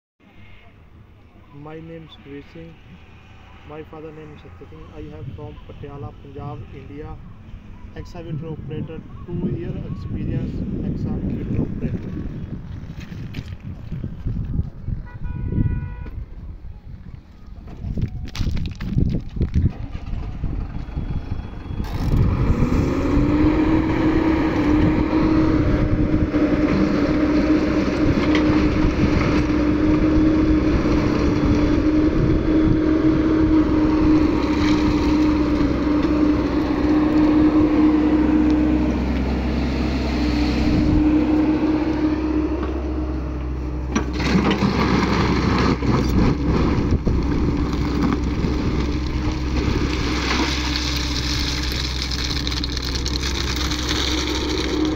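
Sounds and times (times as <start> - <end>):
diesel engine running: 19.6 - 54.9
bucket grinding into stones: 44.0 - 54.9.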